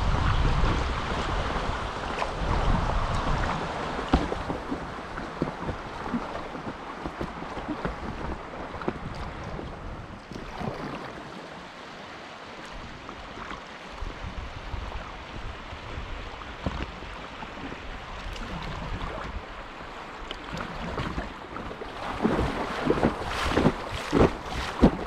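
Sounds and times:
wind rumbling on microphone: 0.0s - 11.3s, 12.7s - 25.0s
fast river water running: 0.0s - 25.0s
paddle strokes splashing: 0.0s - 25.0s.

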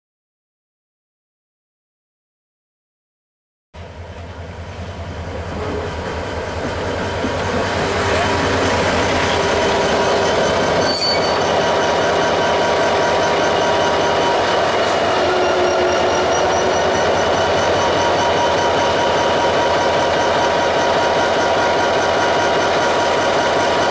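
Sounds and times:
diesel locomotive engine rumble: 3.8s - 23.9s
wheels squealing on rails: 5.2s - 23.9s.

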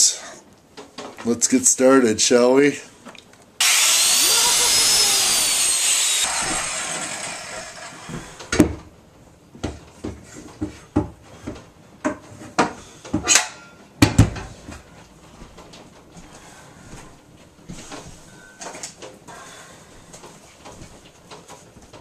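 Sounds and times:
circular saw motor running: 3.6s - 8.1s.

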